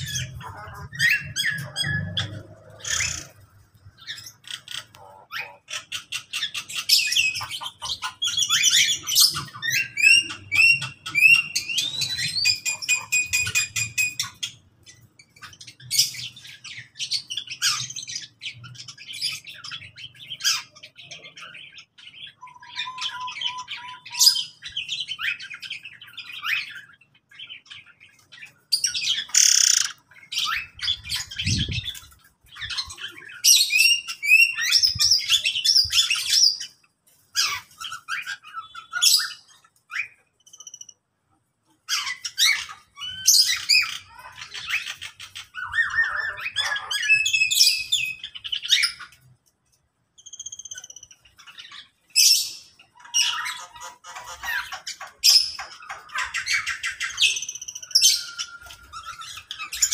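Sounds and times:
harsh bird squawk: 0.0s - 32.0s, 41.8s - 49.2s
cage birds chirping: 0.0s - 59.9s.

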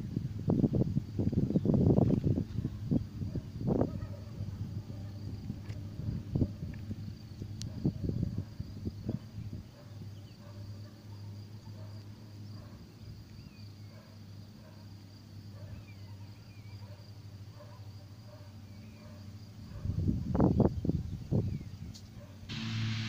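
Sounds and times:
insects buzzing: 0.0s - 23.0s
low steady hum: 22.5s - 23.0s.

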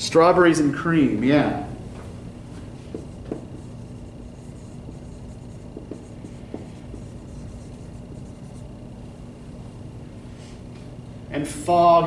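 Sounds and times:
marker writing on whiteboard: 2.5s - 8.8s.

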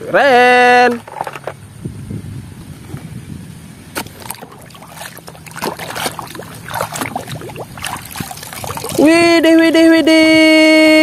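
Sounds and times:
water sloshing in a basin: 4.0s - 9.4s.

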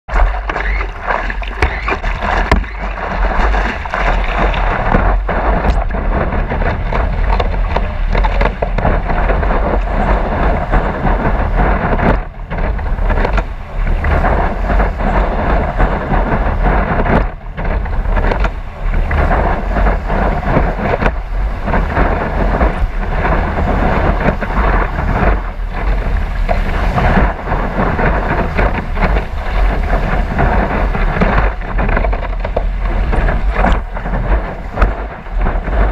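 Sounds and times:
water spray rushing: 0.1s - 35.9s
wind buffeting camera: 0.1s - 35.9s.

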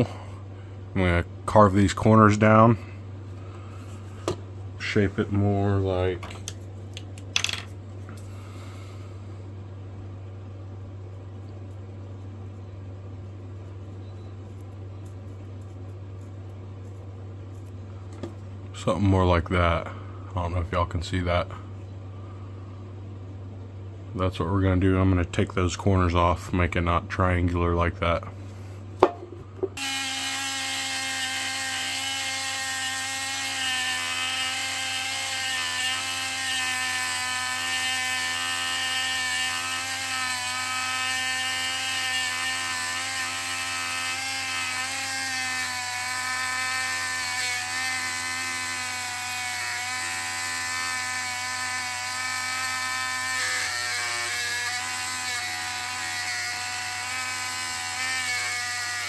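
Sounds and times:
rotary tool grinding steel: 29.8s - 59.0s.

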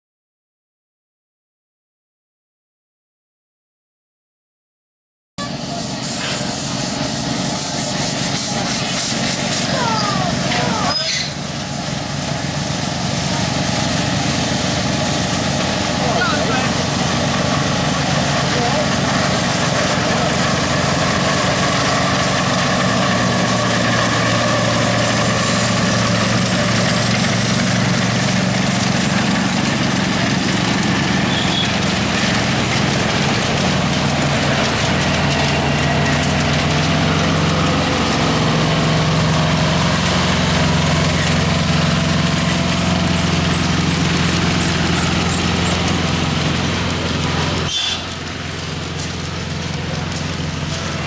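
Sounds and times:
small engine running: 5.4s - 51.0s.

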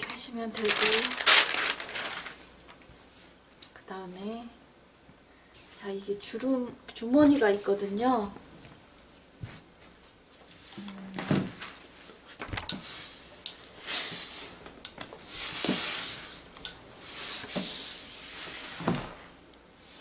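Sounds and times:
steam iron hissing: 15.2s - 16.4s.

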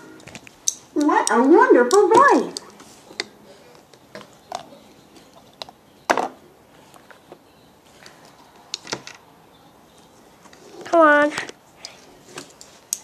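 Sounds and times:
plastic toys knocking and clicking: 0.2s - 6.4s.

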